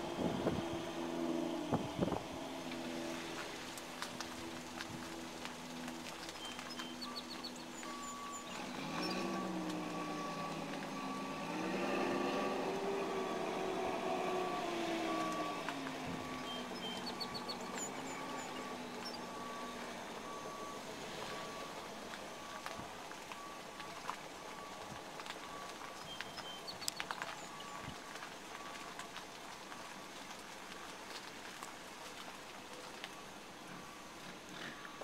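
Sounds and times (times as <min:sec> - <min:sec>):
vehicle engine: 0:00.0 - 0:35.0
reversing alarm beeping: 0:06.5 - 0:28.0.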